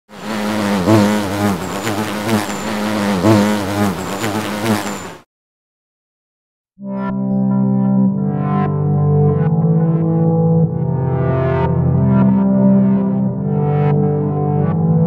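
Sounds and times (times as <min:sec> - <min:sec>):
bees buzzing: 0:00.1 - 0:05.2.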